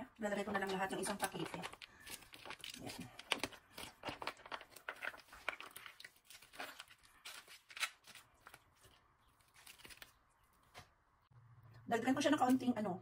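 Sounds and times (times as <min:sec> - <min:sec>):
plastic packet crinkling: 0:01.1 - 0:10.4.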